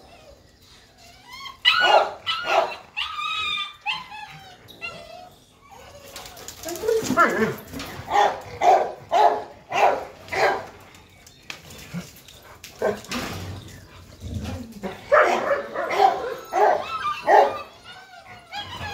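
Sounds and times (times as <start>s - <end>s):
dog barking: 1.8s - 2.7s, 8.1s - 10.6s, 15.1s - 17.6s.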